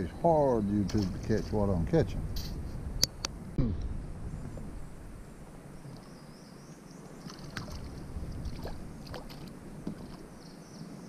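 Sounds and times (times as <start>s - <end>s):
water lapping against boat: 7.2s - 10.4s.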